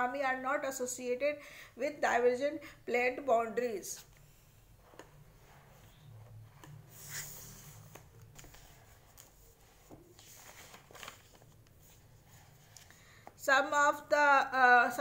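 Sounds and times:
paper rustling: 5.7 - 13.3.

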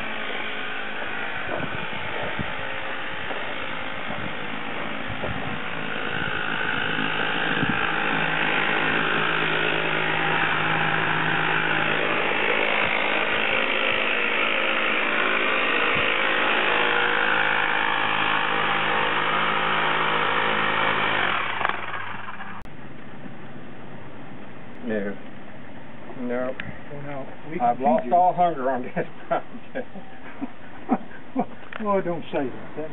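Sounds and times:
machine engine running: 0.0 - 22.8.

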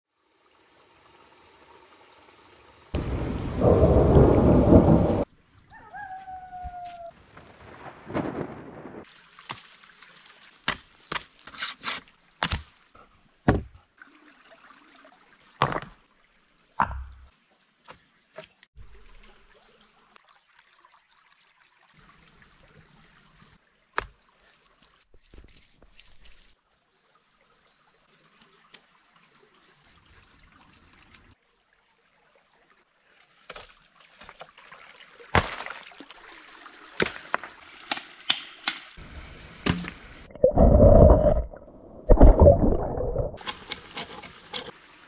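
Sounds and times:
rain hiss: 0.2 - 5.3, 7.2 - 10.6, 39.0 - 40.3
loud deep thunderclap: 3.0 - 5.2, 7.4 - 9.0.

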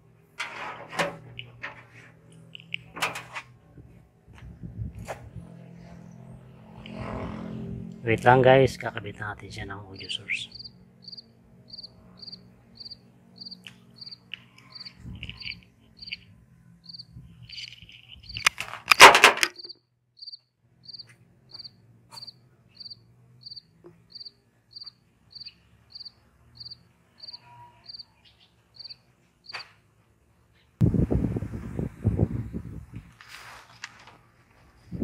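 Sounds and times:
cricket chirping: 10.0 - 18.5, 19.6 - 28.1, 28.8 - 29.6.

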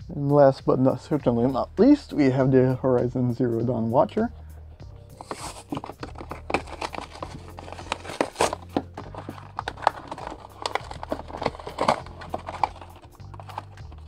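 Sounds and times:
cardboard tearing: 5.2 - 14.0
plastic crinkling: 5.2 - 14.0.

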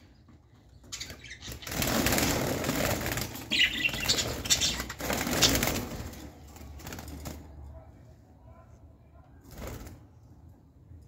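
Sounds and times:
birds fluttering wings in cage: 0.8 - 7.7, 9.4 - 10.2.

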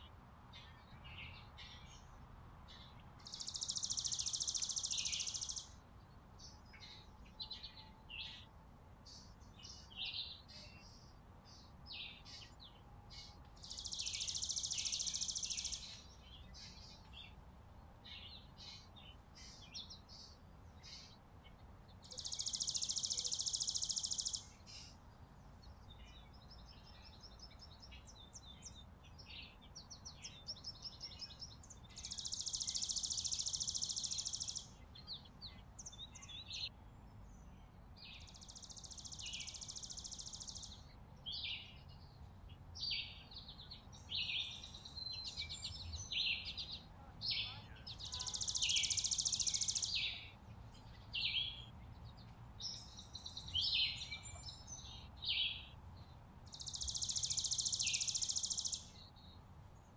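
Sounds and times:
songbirds chirping: 0.0 - 59.9
bird trills: 47.9 - 50.2.

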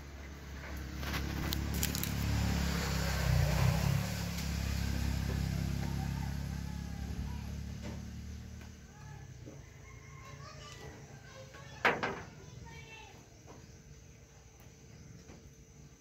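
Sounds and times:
vehicle engine passing by: 0.0 - 9.6.

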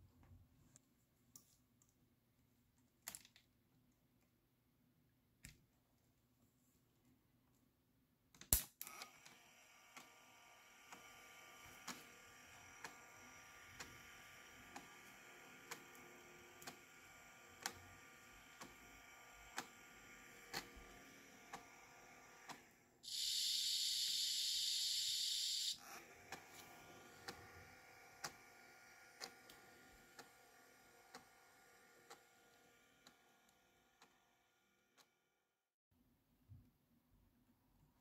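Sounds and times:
loud hiss: 23.0 - 25.8.

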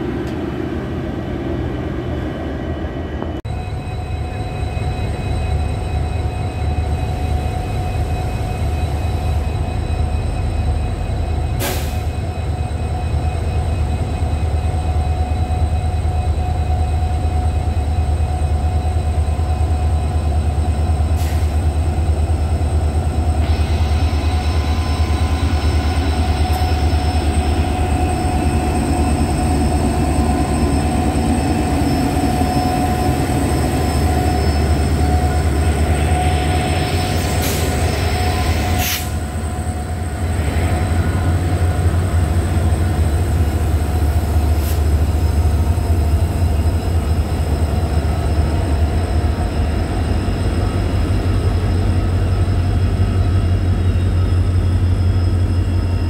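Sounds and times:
diesel locomotive engine rumble: 0.0 - 56.0
engine whine: 0.0 - 56.0.

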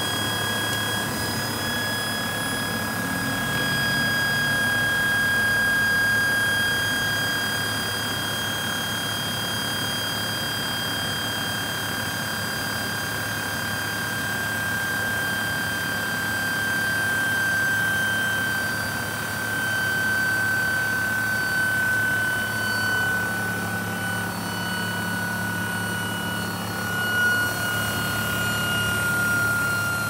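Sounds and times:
gas turbine whine: 0.0 - 30.0.

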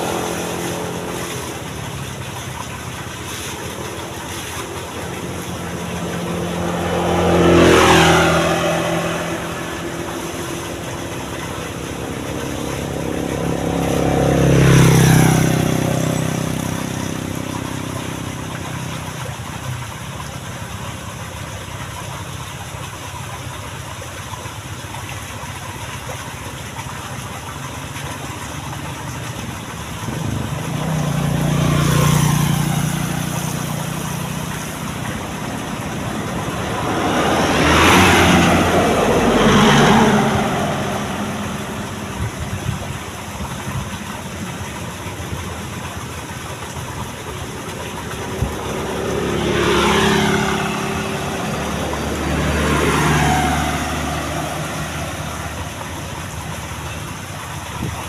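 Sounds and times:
vehicles passing close by: 0.0 - 58.0
water running from pipe into pool: 0.0 - 58.0.

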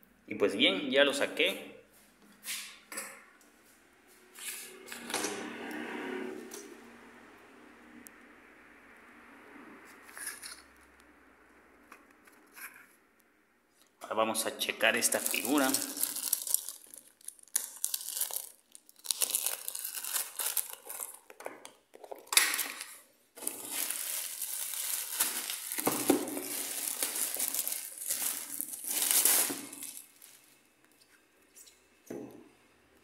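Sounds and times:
plastic bag crinkling: 14.8 - 30.6.

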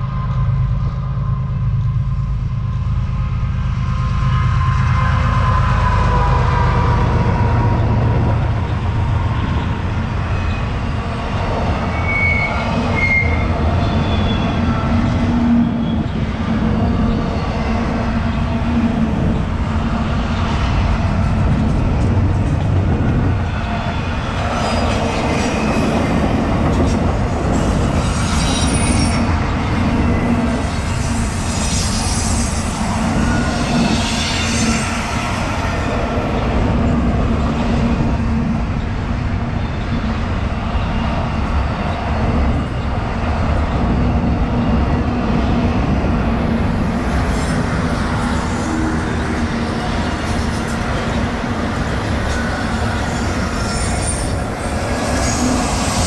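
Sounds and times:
freight train rumbling over rails: 0.0 - 56.0
wheel squeals: 11.8 - 14.8.

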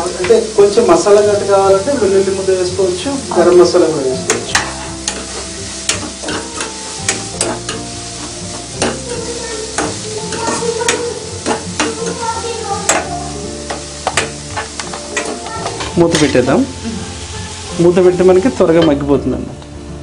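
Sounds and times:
onions sizzling in hot oil: 0.0 - 20.0
utensil clicks and scrapes on pan: 4.3 - 9.1.

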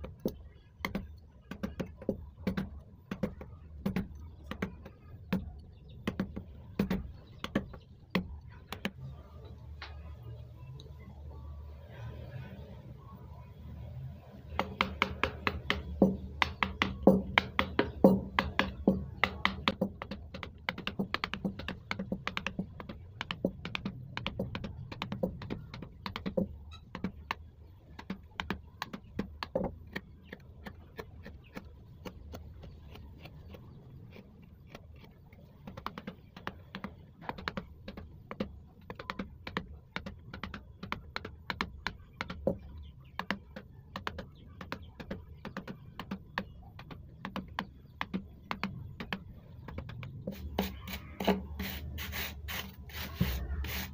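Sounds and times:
mallet tapping chisel into wood: 0.0 - 9.0, 14.5 - 33.6.

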